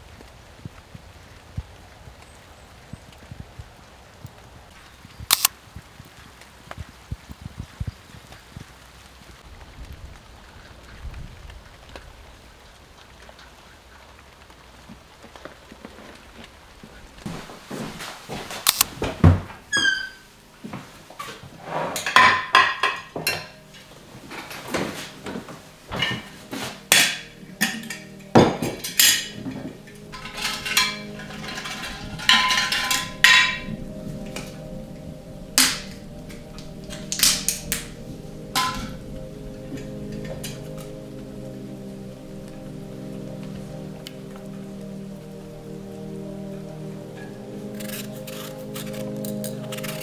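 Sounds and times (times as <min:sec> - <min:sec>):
faint rain: 0:00.0 - 0:50.0
dry strips rustling: 0:47.6 - 0:50.0.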